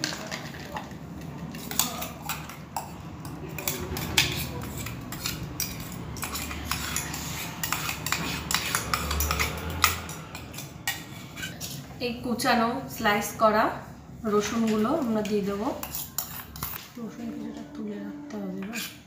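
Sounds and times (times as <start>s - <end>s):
metal spoon scraping steel bowl: 1.4s - 12.0s, 14.3s - 16.8s, 18.3s - 19.0s.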